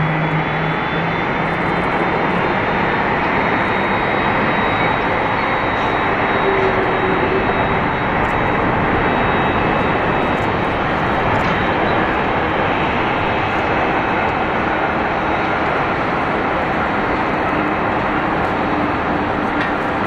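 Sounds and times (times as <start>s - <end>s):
faint high whine: 0.0s - 20.0s
jet engines rushing: 0.0s - 20.0s.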